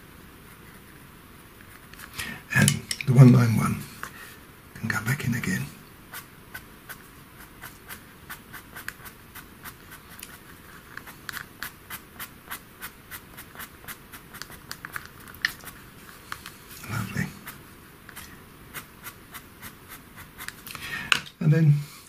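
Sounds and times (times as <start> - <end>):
pencil scratching on paper: 6.1 - 20.6.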